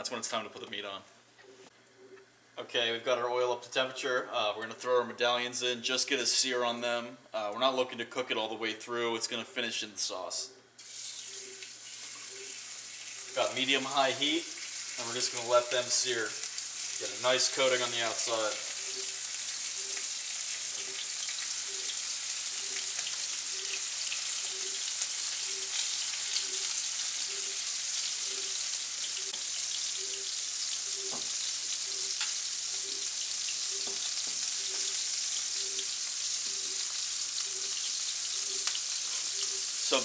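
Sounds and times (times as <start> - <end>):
meat searing in oil: 10.8 - 40.0.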